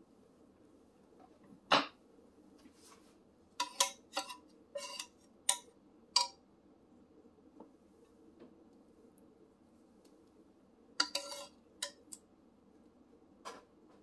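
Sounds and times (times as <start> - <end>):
metal utensils clinking on cookware: 3.6 - 6.4, 11.0 - 12.1.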